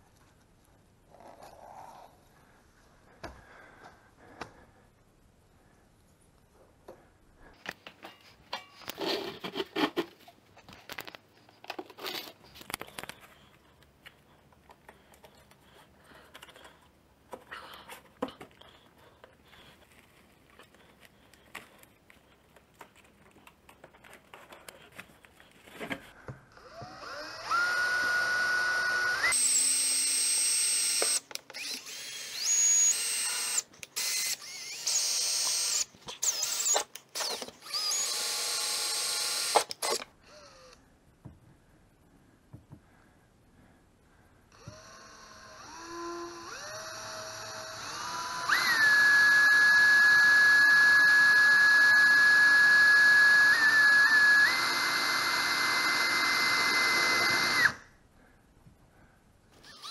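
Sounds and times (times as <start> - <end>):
cordless drill whining: 26.6 - 40.8, 44.6 - 57.8, 59.6 - 59.9.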